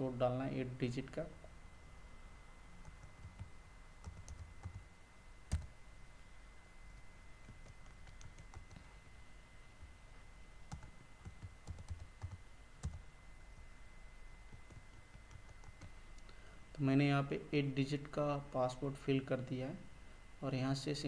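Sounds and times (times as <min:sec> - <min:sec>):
keyboard typing: 0:02.8 - 0:04.9, 0:05.5 - 0:05.7, 0:07.4 - 0:08.8, 0:10.7 - 0:13.1, 0:14.5 - 0:16.0.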